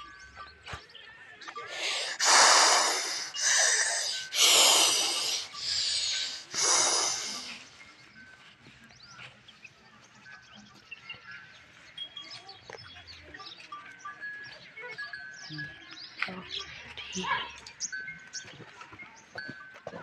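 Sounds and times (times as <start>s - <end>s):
cow snorting breaths: 1.7s - 7.9s.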